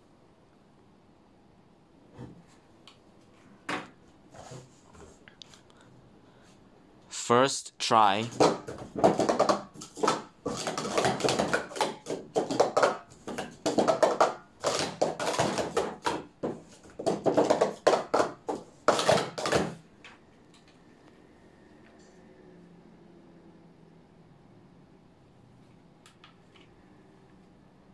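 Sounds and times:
plastic cups clattering: 8.1 - 19.8.

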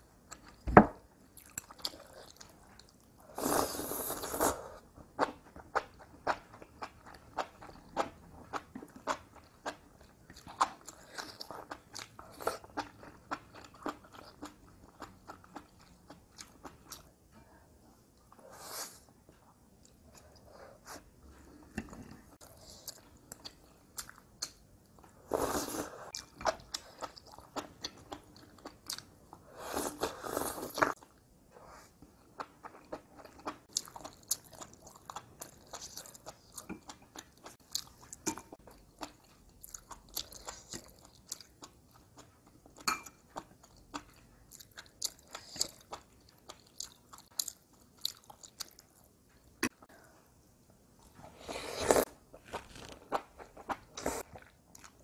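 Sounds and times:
person chewing: 1.4 - 17.1, 25.3 - 31.1, 32.3 - 49.9, 51.0 - 55.0.

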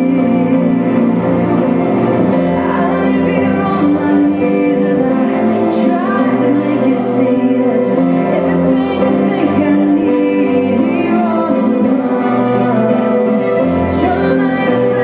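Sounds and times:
music with singing: 0.0 - 15.0.

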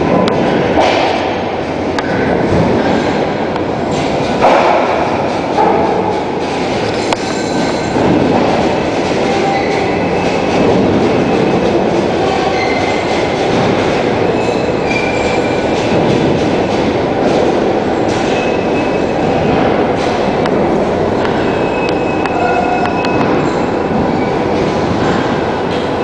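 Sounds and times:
train wheels rumbling on rails: 0.0 - 26.0
high wheel squeals: 12.2 - 13.3, 14.3 - 15.7.

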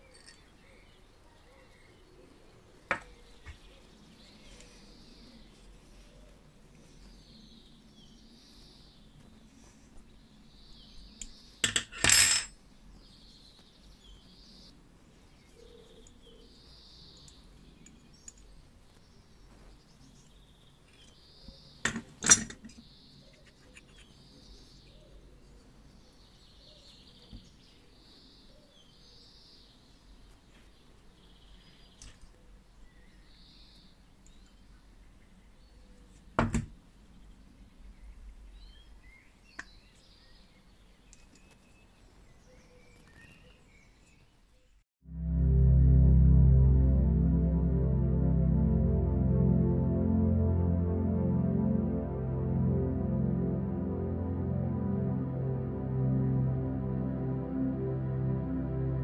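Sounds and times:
metal tools and parts clinking: 0.0 - 0.7, 11.6 - 12.5, 21.9 - 22.8.

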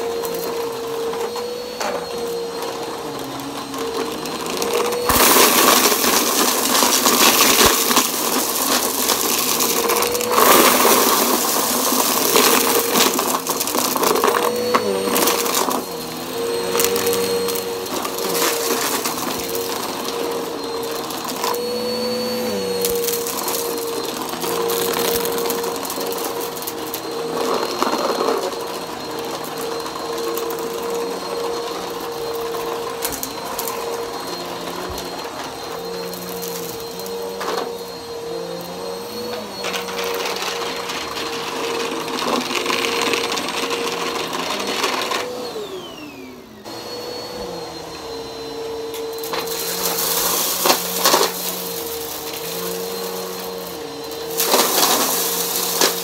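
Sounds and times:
vacuum cleaner running on carpet: 0.0 - 56.0
debris clicking and crackling: 5.0 - 15.7.

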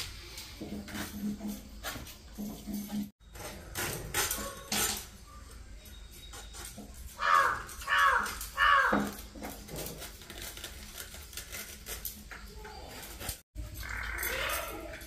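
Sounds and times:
loud animal call: 7.2 - 9.3, 13.8 - 15.0.

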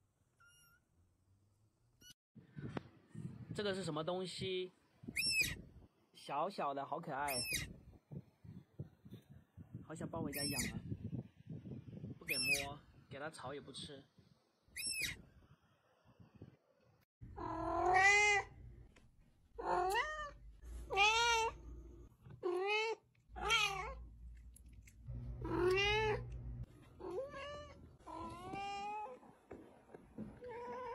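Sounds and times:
cat meowing: 17.3 - 18.6, 19.6 - 21.6, 22.3 - 24.1, 25.3 - 26.4, 27.0 - 29.2, 30.4 - 30.9.

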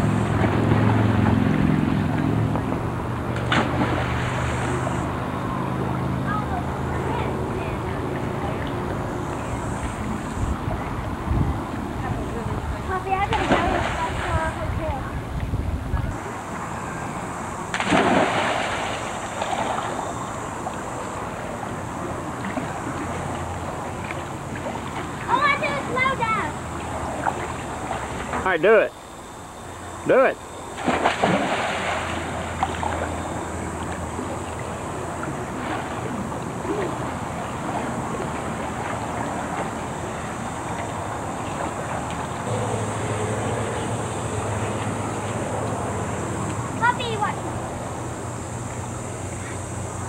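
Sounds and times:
water splash: 0.0 - 5.2, 13.3 - 14.6, 17.7 - 25.4, 30.8 - 45.5
low mechanical hum: 0.0 - 50.0
pool water sloshing: 0.0 - 50.0.

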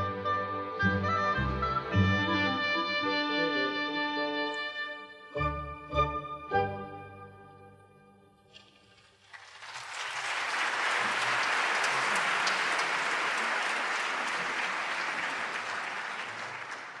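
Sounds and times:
audience applause: 9.2 - 17.0.

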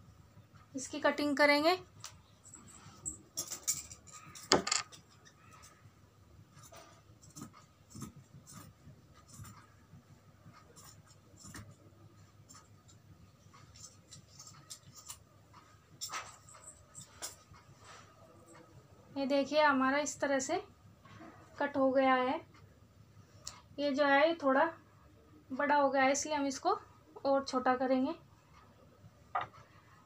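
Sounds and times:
scissors cutting cloth: 6.6 - 9.8, 10.5 - 11.8.

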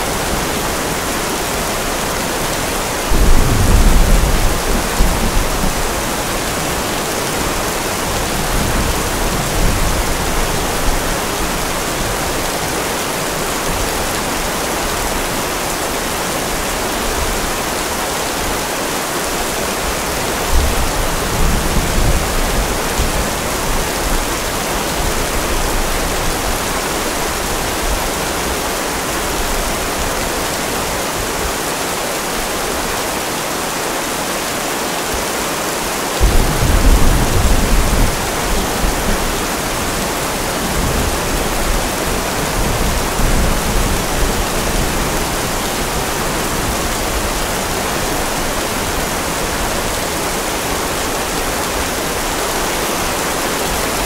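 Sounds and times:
steady rain: 0.0 - 54.0
thunder rumbling: 3.1 - 11.4, 36.2 - 49.1.

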